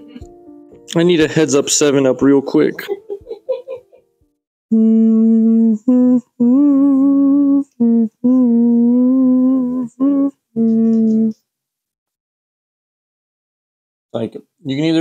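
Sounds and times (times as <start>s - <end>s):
person humming: 4.7s - 11.4s.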